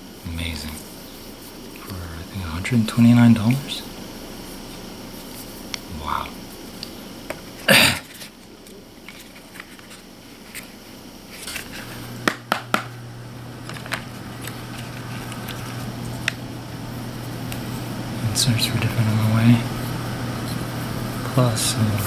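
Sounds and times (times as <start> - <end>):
low steady hum: 0.0 - 22.0.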